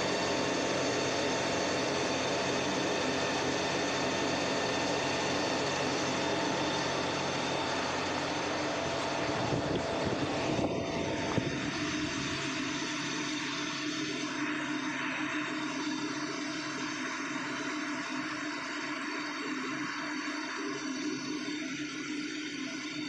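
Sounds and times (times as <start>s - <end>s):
factory machinery humming: 0.0s - 15.2s.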